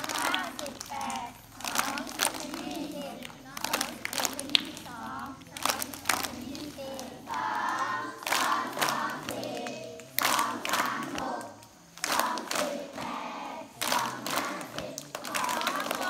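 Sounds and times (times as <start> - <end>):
hand claps: 0.0 - 13.2, 13.8 - 16.0
children chanting: 0.0 - 16.0.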